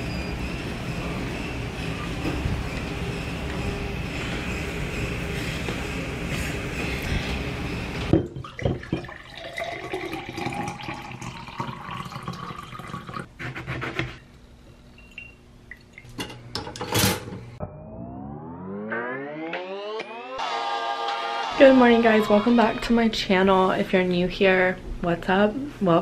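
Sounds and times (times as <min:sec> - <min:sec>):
gym machine noise: 0:00.0 - 0:08.2
water pouring into a glass: 0:08.4 - 0:13.3.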